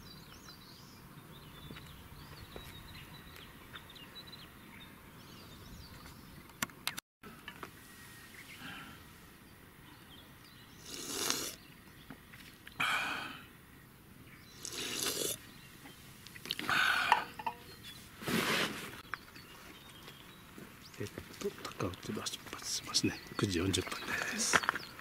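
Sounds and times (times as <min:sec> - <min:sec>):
small birds chirping: 0:00.0 - 0:07.0, 0:07.6 - 0:18.2, 0:19.0 - 0:25.0.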